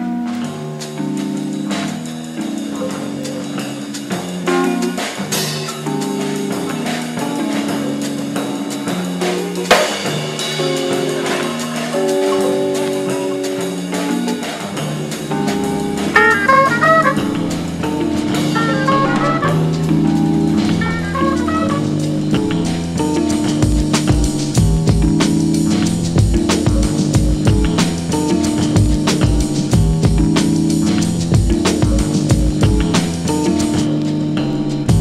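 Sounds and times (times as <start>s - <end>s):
jazz band music: 7.9s - 34.0s.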